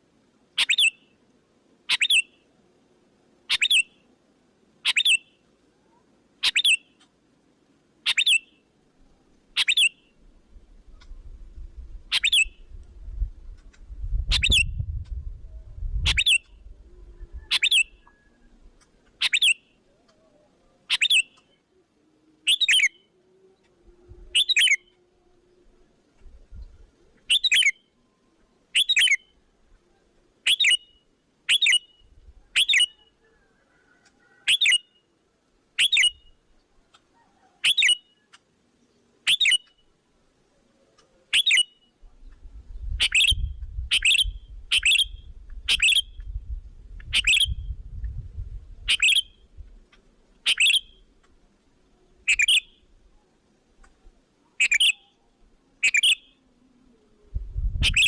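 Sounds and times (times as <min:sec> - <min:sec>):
low rumble: 0:42.4 - 0:48.9
short sharp bird calls: 0:54.5 - 0:55.2.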